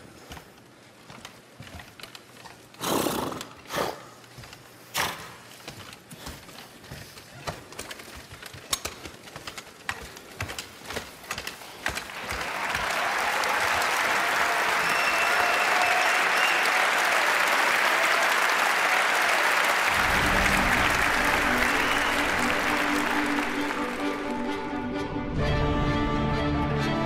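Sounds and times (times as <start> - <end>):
hooves clopping on stage floor: 0.0 - 24.6
audience applause: 11.8 - 24.8.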